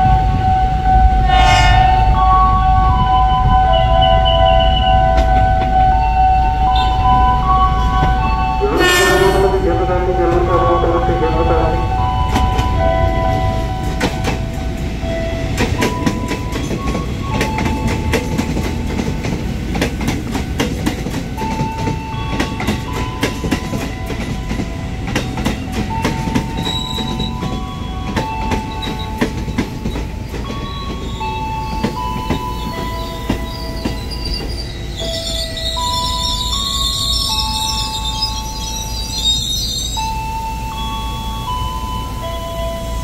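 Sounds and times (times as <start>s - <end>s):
train low rumble: 0.0s - 43.0s
train wheel clicks over rail joints: 15.5s - 34.6s.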